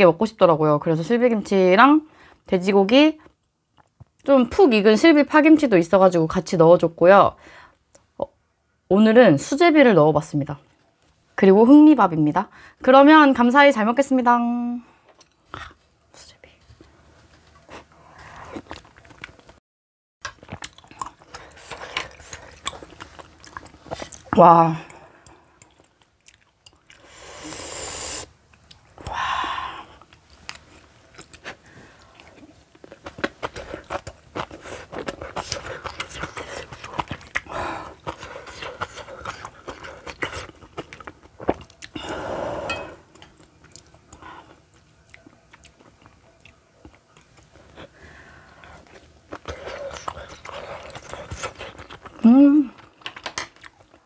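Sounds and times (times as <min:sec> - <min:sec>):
wet chewing and lip smacks: 0:30.0 - 0:42.0.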